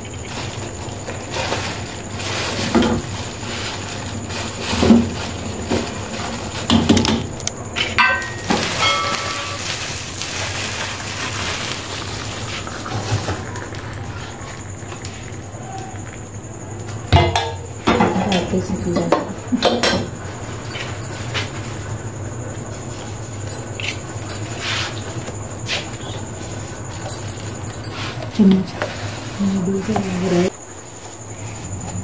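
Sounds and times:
tea pouring into cups: 9.6 - 16.2.

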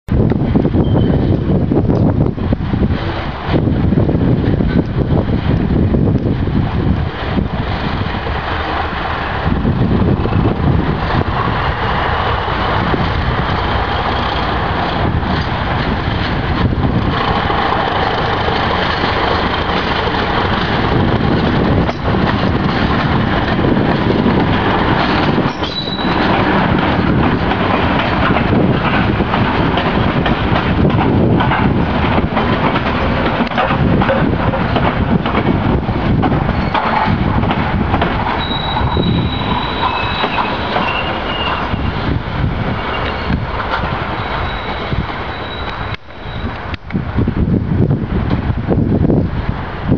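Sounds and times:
locomotive engine rumbling: 0.2 - 49.9
wheels clicking over rail joints: 6.9 - 47.0
high wheel squeal: 25.4 - 26.3, 36.5 - 36.8, 38.4 - 42.2, 42.9 - 43.5, 44.1 - 46.6.

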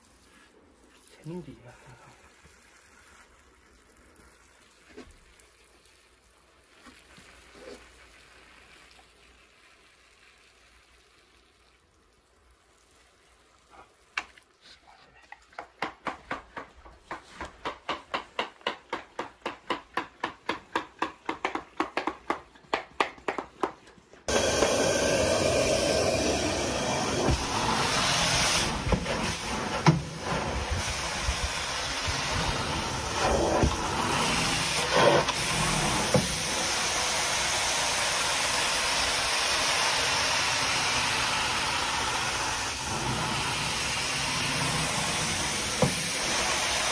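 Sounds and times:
carpet extraction vacuum: 24.3 - 46.9.

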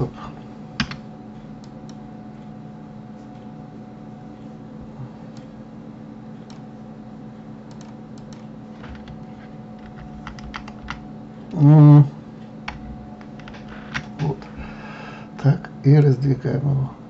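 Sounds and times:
steady low hum: 0.0 - 17.0
keyboard and mouse clicking: 0.8 - 1.0, 7.7 - 11.0, 12.7 - 14.4
person humming: 11.5 - 12.2.

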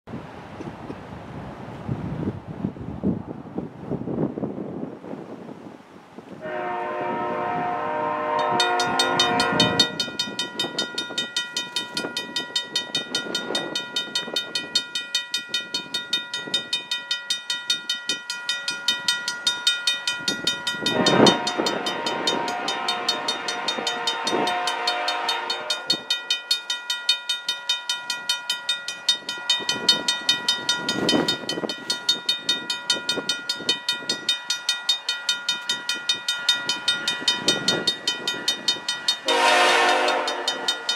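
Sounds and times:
train rumble: 0.2 - 40.9
train horn blasts: 6.4 - 10.1, 20.9 - 26.1, 39.2 - 40.9
bell ringing: 8.4 - 40.9.

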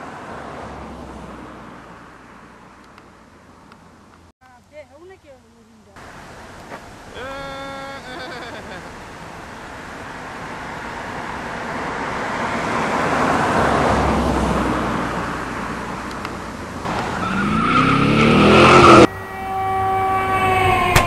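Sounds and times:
car passing at speed: 0.0 - 2.7, 9.3 - 16.1, 16.8 - 21.0
tires squealing: 16.8 - 21.0.

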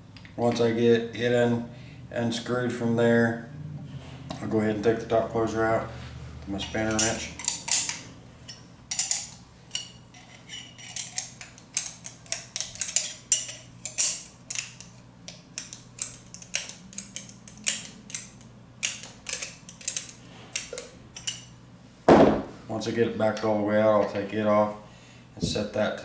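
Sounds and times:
wrench clicking on metal: 6.6 - 21.4.

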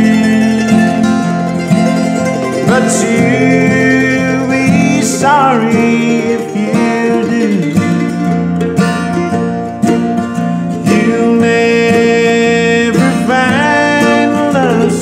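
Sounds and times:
man singing: 0.0 - 1.4, 2.3 - 8.5, 10.7 - 15.0
acoustic guitar playing: 0.0 - 15.0
mandolin playing: 0.0 - 15.0.

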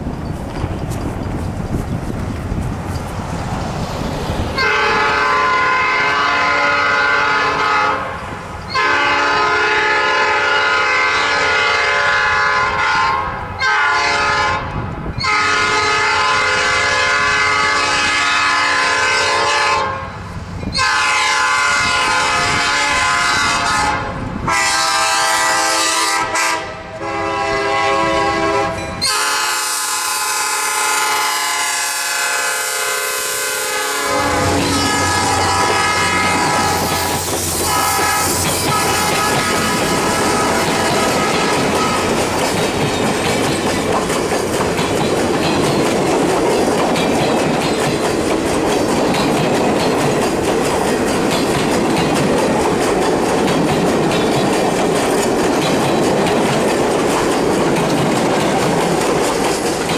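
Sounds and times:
locomotive air horn blasts: 4.6 - 20.2, 20.8 - 42.2.

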